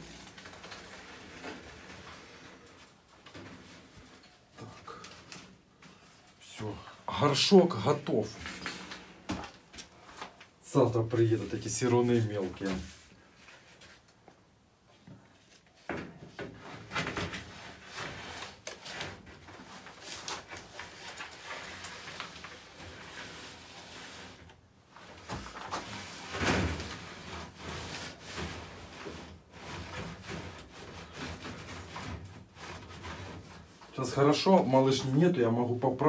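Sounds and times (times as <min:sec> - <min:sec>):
paper crinkling: 0:00.0 - 0:06.1, 0:17.0 - 0:34.0.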